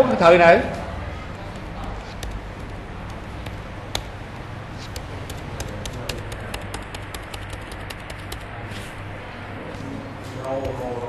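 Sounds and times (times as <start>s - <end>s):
steady low hum: 0.0s - 11.0s
keyboard typing: 1.1s - 9.8s.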